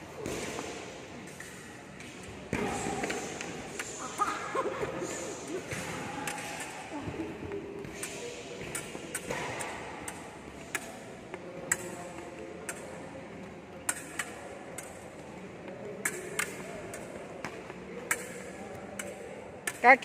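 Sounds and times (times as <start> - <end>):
fencing blades clicking: 8.0 - 11.0, 11.7 - 13.0, 13.8 - 15.0, 18.0 - 20.0.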